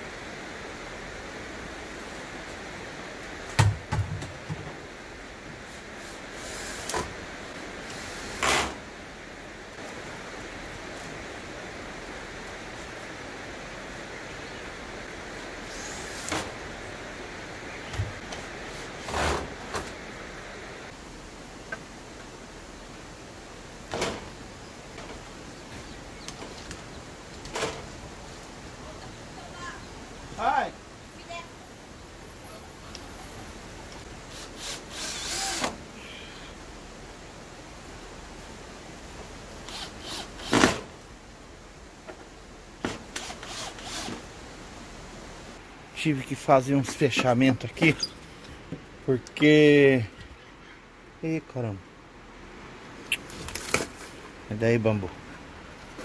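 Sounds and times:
steady hiss: 0.0s - 56.0s.

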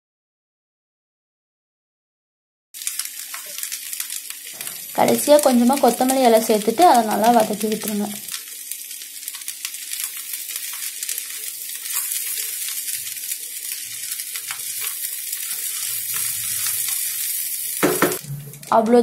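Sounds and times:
rice sizzling in a frying pan: 2.8s - 19.0s
spatula scraping and knocking pan: 8.5s - 18.5s.

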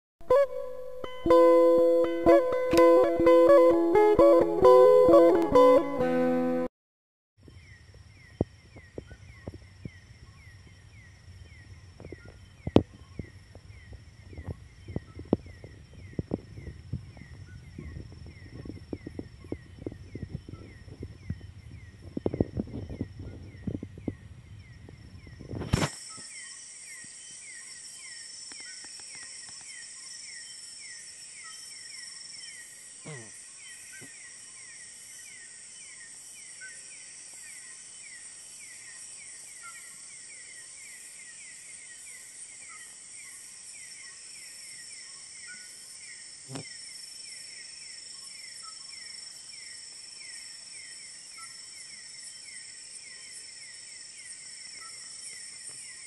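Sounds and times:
insects chirping: 7.4s - 56.0s
faint short calls: 33.0s - 33.4s.

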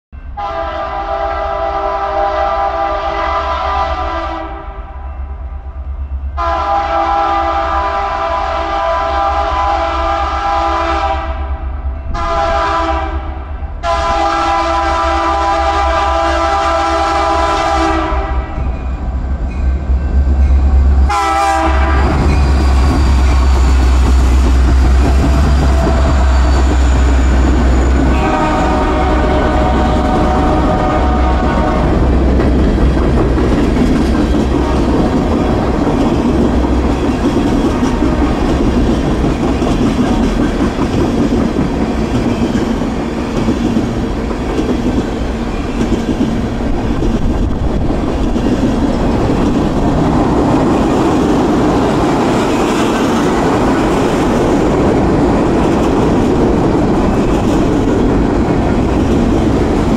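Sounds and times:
locomotive horn blasts: 0.4s - 5.0s, 6.4s - 11.5s, 12.1s - 18.7s, 21.1s - 22.4s, 25.4s - 32.2s
locomotive engine rumble: 18.4s - 59.9s
wheels clattering on rail: 21.8s - 59.9s.

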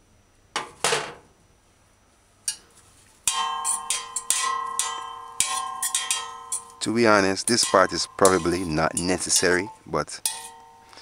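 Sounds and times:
fork scraping metal pot: 3.3s - 11.0s
pot ringing like a bell: 3.3s - 11.0s.

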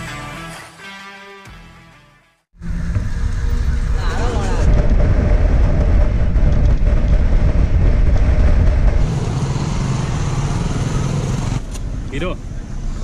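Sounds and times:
motorcycle engine drone: 2.6s - 13.0s
wind rush on microphone: 2.9s - 9.8s.

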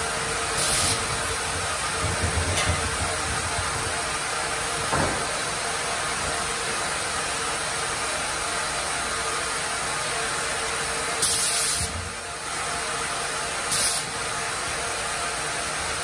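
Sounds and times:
loud burst of hiss: 0.0s - 2.0s, 11.2s - 12.1s, 13.7s - 14.2s.

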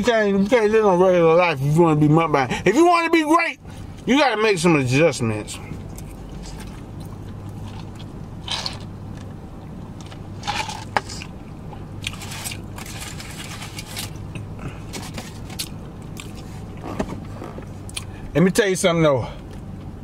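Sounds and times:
steady low hum: 0.0s - 20.0s
man chewing food: 5.7s - 10.2s, 11.1s - 16.9s, 17.9s - 18.1s.

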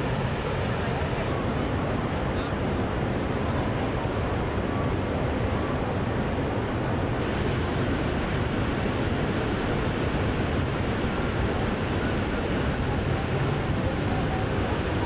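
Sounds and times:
waterfall rushing: 7.2s - 15.0s.

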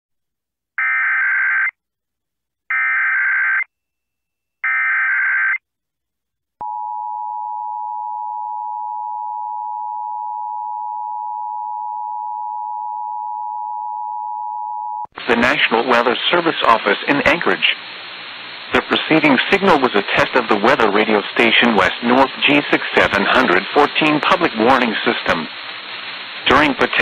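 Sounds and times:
steady warning alarm tone: 0.8s - 1.7s, 2.7s - 3.7s, 4.6s - 5.6s.

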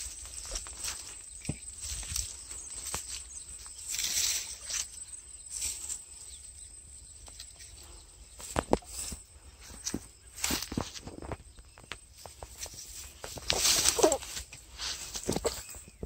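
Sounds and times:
grass and weeds rustling: 0.0s - 16.0s.

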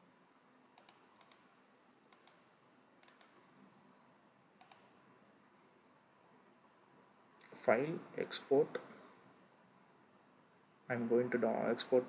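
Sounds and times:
computer mouse clicking: 0.8s - 1.5s, 2.1s - 2.4s, 3.0s - 3.4s, 4.6s - 4.9s.

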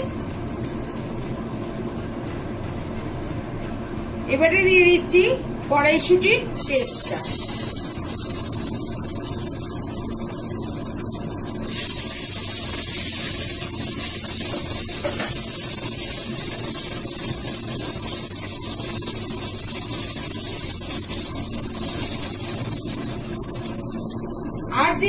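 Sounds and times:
paste sizzling in hot oil: 6.6s - 25.0s.

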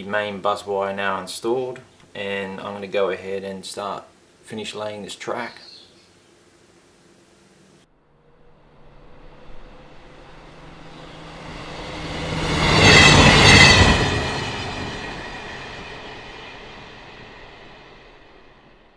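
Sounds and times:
high tone over rumble: 7.7s - 18.9s
train passing by: 8.0s - 18.9s.

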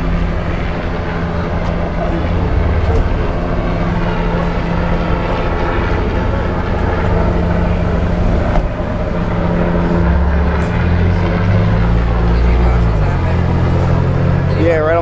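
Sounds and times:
vehicle engines idling and passing: 0.0s - 15.0s.

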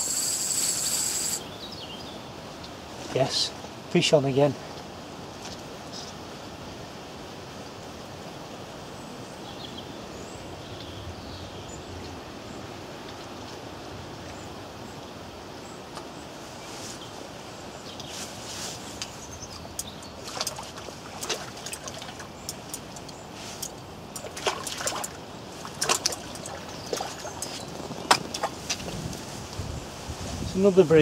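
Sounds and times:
fish splashing in water: 20.2s - 28.8s.

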